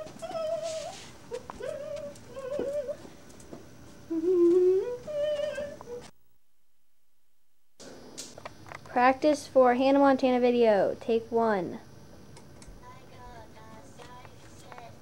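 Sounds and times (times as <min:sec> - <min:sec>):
child humming: 0:04.1 - 0:06.1.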